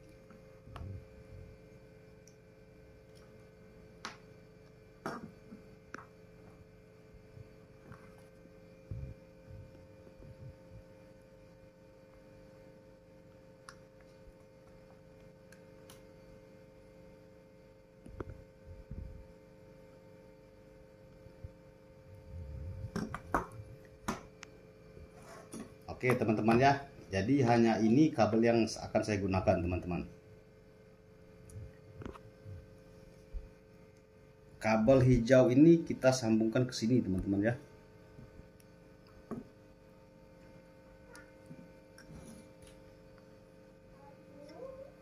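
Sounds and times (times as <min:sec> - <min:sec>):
faint steady hum: 0:00.0 - 0:45.0.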